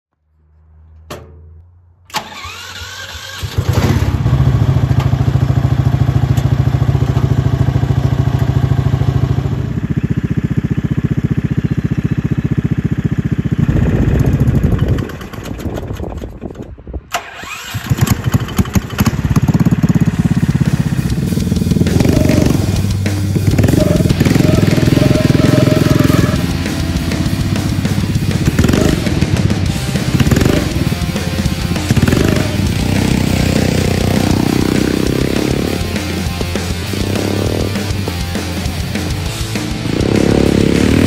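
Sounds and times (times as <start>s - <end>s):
small engine starting: 2.1s - 5.3s, 9.4s - 29.4s
engine idling: 2.2s - 16.2s, 17.4s - 41.0s
engine revving unevenly: 17.4s - 41.0s.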